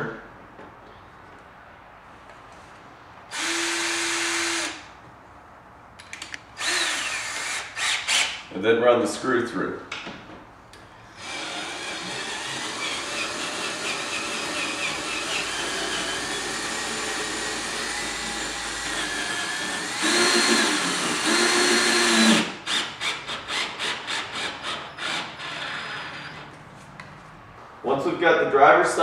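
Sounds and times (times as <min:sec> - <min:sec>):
cordless drill driving a screw: 0:03.3 - 0:04.8, 0:06.6 - 0:08.4, 0:11.2 - 0:26.4.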